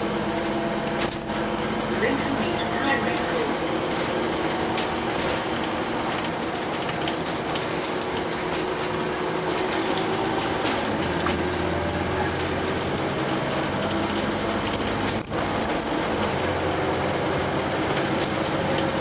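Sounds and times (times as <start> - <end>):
bus diesel engine running: 0.0 - 19.0.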